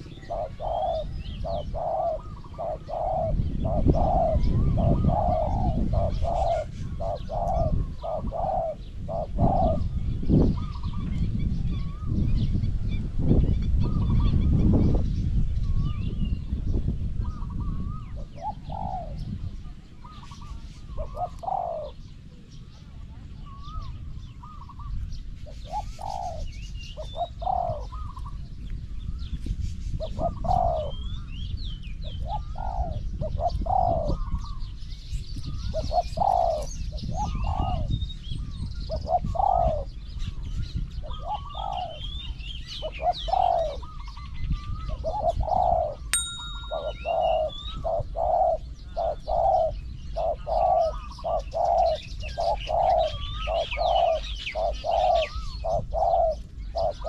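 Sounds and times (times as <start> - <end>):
doves cooing: 0.0 - 11.1, 17.2 - 19.3, 20.0 - 22.2, 23.5 - 28.4, 30.0 - 31.1, 32.0 - 34.6, 35.7 - 38.0, 38.9 - 40.0, 41.0 - 44.2, 44.8 - 57.0
small birds chirping: 0.0 - 57.0.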